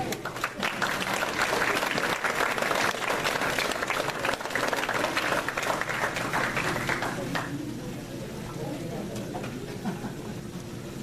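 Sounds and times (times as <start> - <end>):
audience applauding: 0.1 - 7.6.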